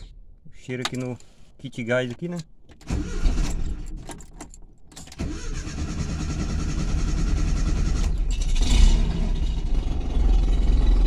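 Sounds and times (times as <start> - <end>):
car engine starting and running: 2.7 - 11.0.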